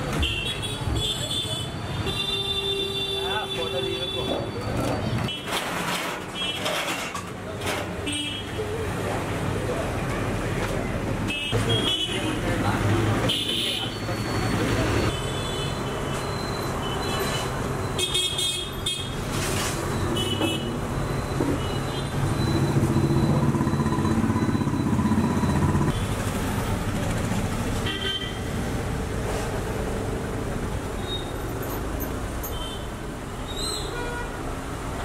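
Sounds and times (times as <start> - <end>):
vehicle engines running: 19.2 - 32.5.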